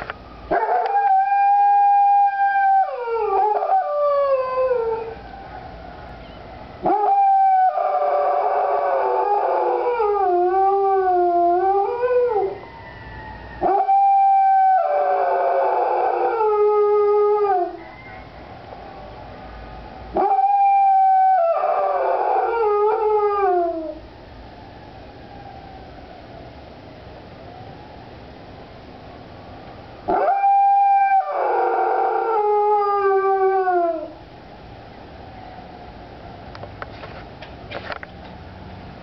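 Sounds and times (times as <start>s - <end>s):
fire truck sirens: 0.0s - 34.0s
dog howling: 0.5s - 5.2s, 6.8s - 12.6s, 13.6s - 18.3s, 20.1s - 24.0s, 30.1s - 34.2s.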